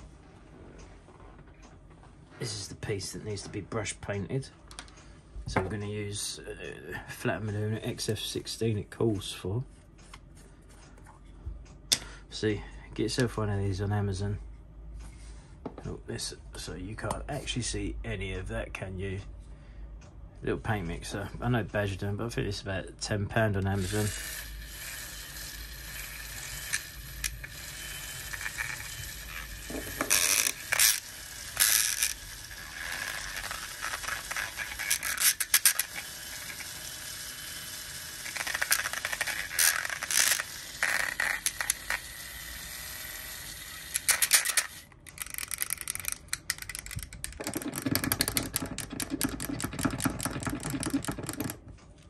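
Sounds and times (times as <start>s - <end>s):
paint mixer shaft rattling on glass: 45.1s - 51.6s.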